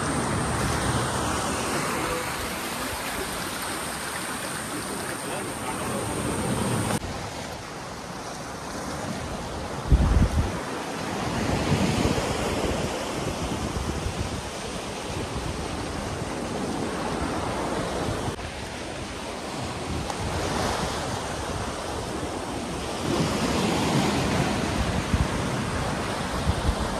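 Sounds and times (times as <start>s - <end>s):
waves breaking on rocky shore: 0.0s - 26.9s
wind noise on microphone: 8.6s - 26.9s.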